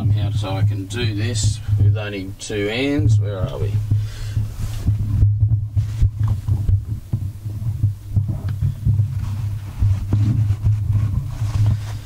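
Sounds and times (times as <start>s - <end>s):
steady low hum: 0.0s - 12.0s
camera handling knocks and rubbing: 3.8s - 12.0s.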